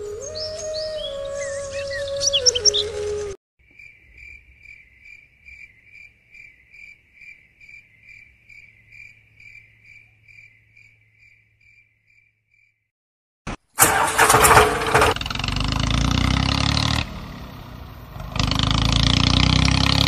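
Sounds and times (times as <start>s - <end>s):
cricket chirping: 3.6s - 12.9s.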